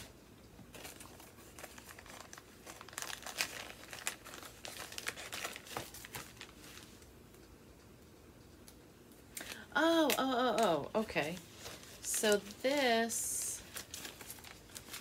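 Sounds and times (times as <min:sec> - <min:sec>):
packaging crinkling: 0:00.7 - 0:07.1, 0:09.3 - 0:15.0.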